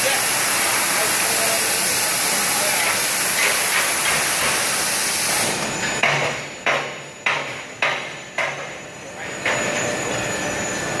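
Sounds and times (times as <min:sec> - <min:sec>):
steady machine hiss: 0:00.0 - 0:11.0
sharp ringing knocks: 0:06.0 - 0:09.8.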